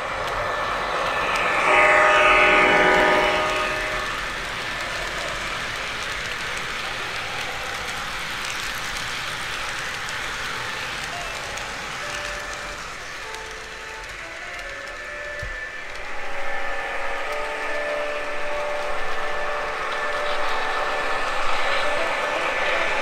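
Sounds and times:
train cars rumbling on track: 0.0s - 23.0s
locomotive horn chord: 0.6s - 4.5s, 12.0s - 23.0s.

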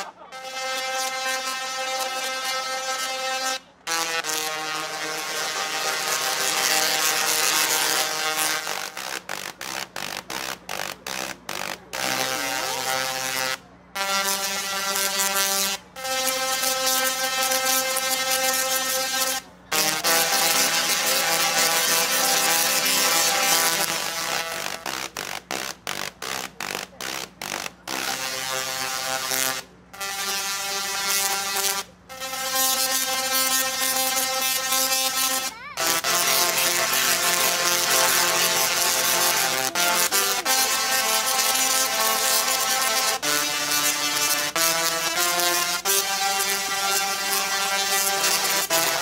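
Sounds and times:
singing tesla coils buzzing music: 0.0s - 49.0s.

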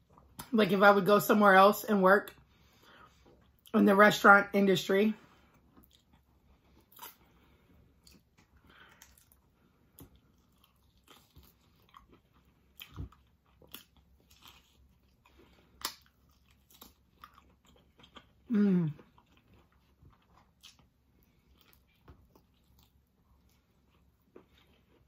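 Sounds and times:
chewing and mouth smacks: 5.5s - 25.0s.

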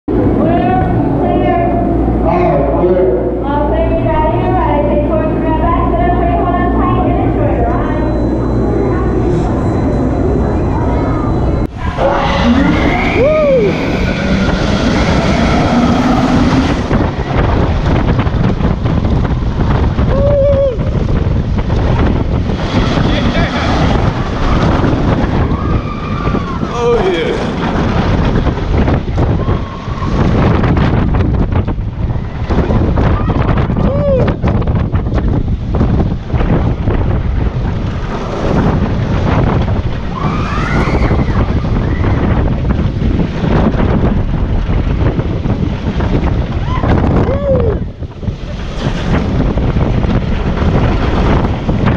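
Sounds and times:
wind rushing over microphone: 0.0s - 51.9s
wheels rumbling on track: 3.4s - 51.9s
rising and falling squeals: 7.7s - 17.6s, 22.5s - 28.4s, 40.0s - 42.5s
rider whooping: 11.8s - 17.0s, 20.0s - 21.0s, 32.7s - 34.5s, 46.5s - 48.0s.

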